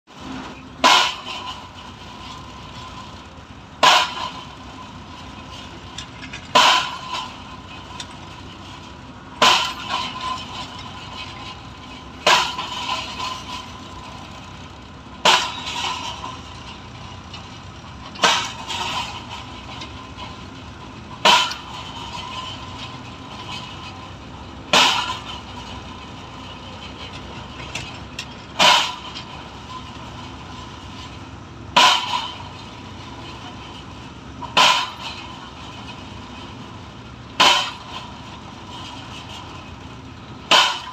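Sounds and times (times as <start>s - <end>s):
engine humming: 0.1s - 40.9s
pile driver hammer bangs: 24.7s - 25.4s, 31.8s - 32.5s, 37.4s - 38.0s, 40.5s - 40.9s.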